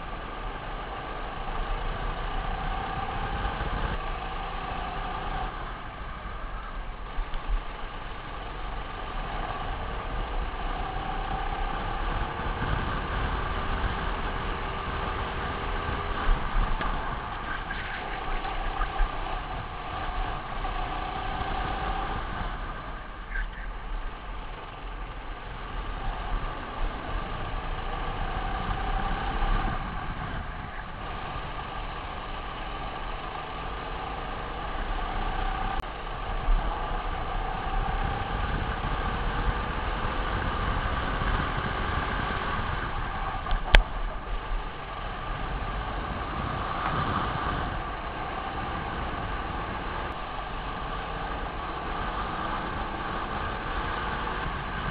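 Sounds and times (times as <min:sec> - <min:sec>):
kart engine revving: 0:00.0 - 0:54.9
wind rumble on microphone: 0:00.0 - 0:54.9.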